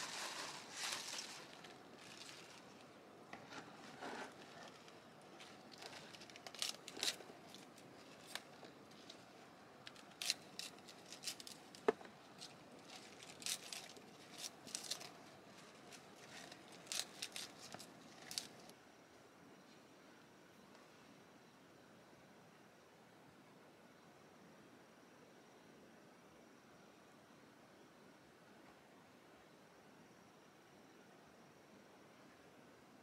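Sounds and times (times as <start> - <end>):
plant material snipping and crinkling: 0.0 - 18.7.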